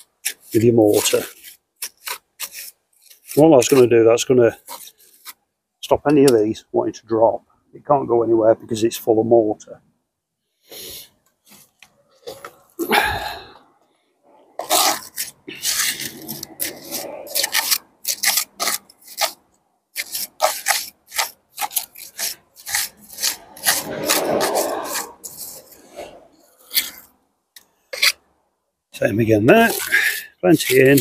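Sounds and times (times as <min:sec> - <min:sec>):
trowel scraping mortar: 0:00.0 - 0:05.5, 0:14.5 - 0:28.3, 0:29.0 - 0:31.0.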